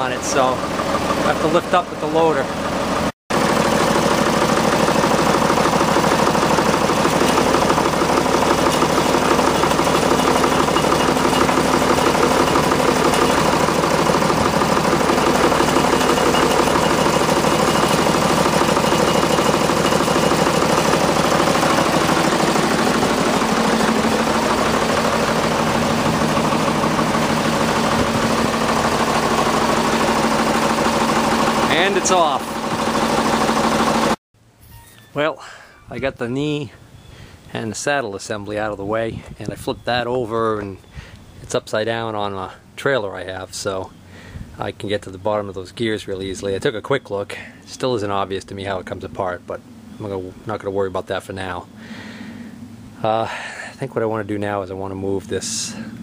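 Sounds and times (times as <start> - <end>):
tractor engine running: 0.0 - 34.2.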